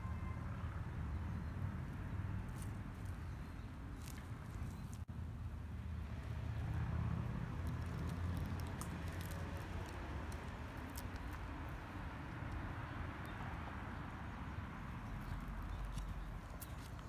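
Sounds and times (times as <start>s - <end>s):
faint clicks and ticks: 7.3s - 11.5s.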